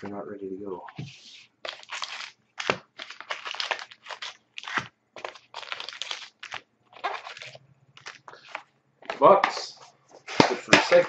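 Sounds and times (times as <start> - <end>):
cardboard box crackling and crushing: 1.7 - 8.5.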